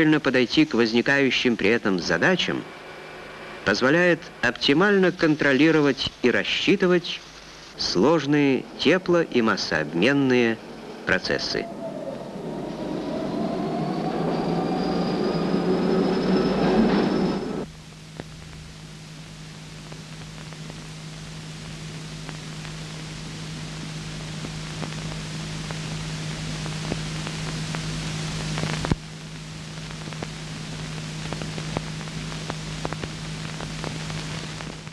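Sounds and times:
film hiss: 0.0 - 34.9
low hum: 1.1 - 34.9
crackles and pops: 17.6 - 34.9.

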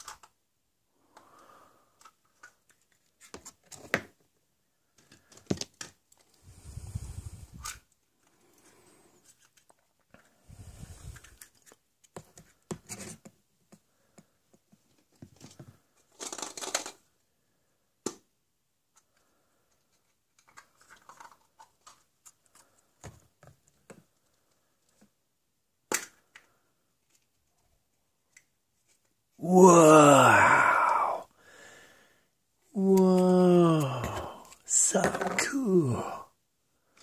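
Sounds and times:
plastic toys clicking and rustling: 0.0 - 0.4, 2.0 - 4.0, 11.0 - 13.2, 14.9 - 17.2, 19.0 - 25.1
plastic eggs snapping open: 25.9 - 26.5.

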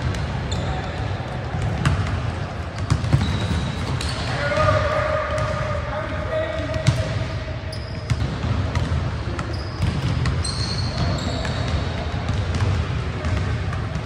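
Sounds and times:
shoes squeaking on floor: 2.8 - 4.5, 9.4 - 11.7.

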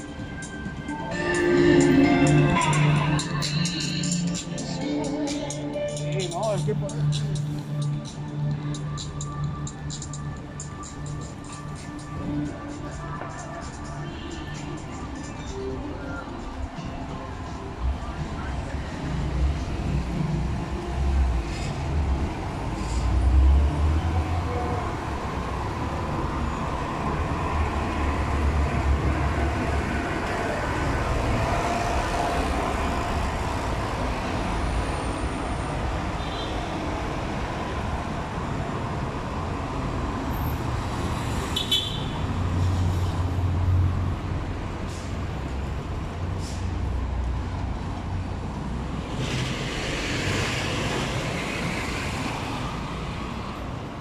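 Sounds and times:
low rumble of passing vehicles: 0.0 - 54.0
rushing hiss of passing vehicle: 44.7 - 47.4, 48.8 - 53.4.

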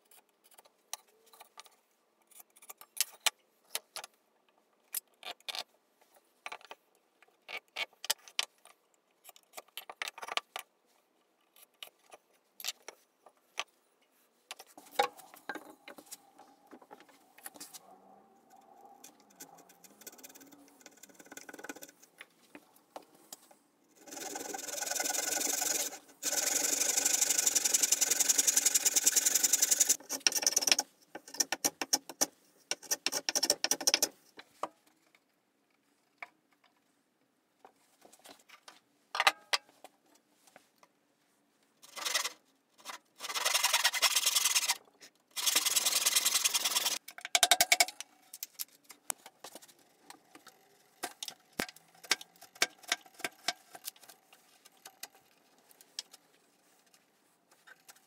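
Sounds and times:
rasping strokes on wood: 24.0 - 30.0
hand saw cutting wood: 24.0 - 30.8, 43.2 - 44.8, 45.4 - 47.0.

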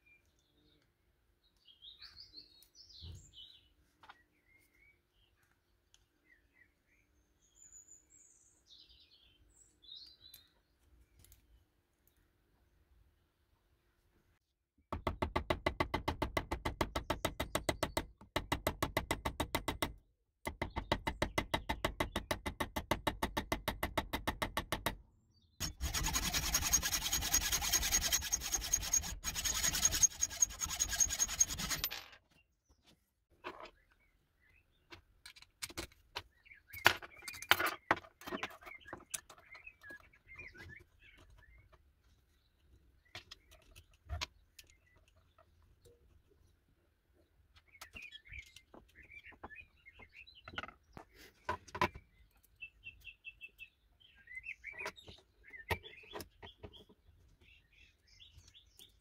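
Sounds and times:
rapid strokes on steel part: 25.6 - 32.0
hacksaw cutting steel: 25.6 - 32.1.

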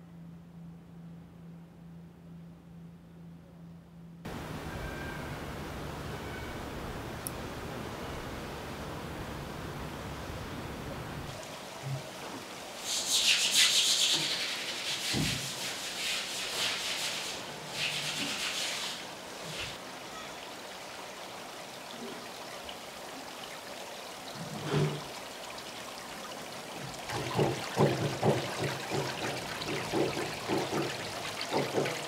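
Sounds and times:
steady low background noise: 0.0 - 12.9
water running and splashing in tanks: 7.0 - 32.0.

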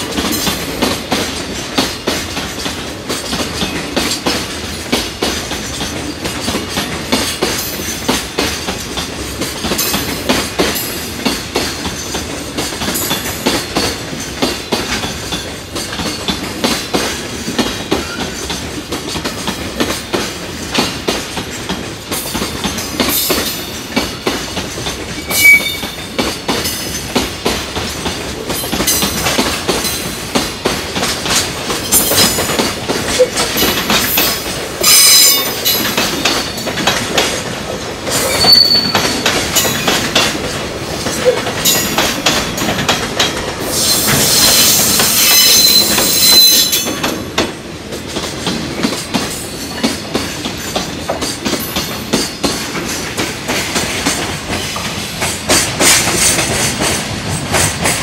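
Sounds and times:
train wheels clattering on rails: 0.0 - 58.0.

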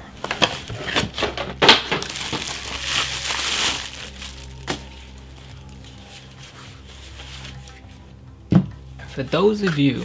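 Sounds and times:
plastic packaging crinkling: 0.4 - 6.0.

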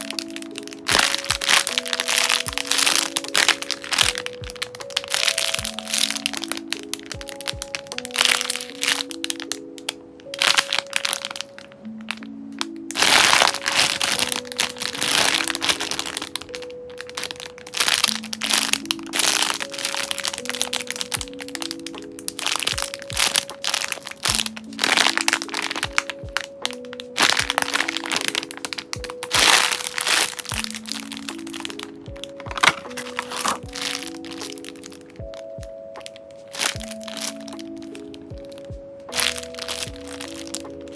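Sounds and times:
background music: 0.0 - 40.9
plastic bags crinkling: 0.0 - 40.9.

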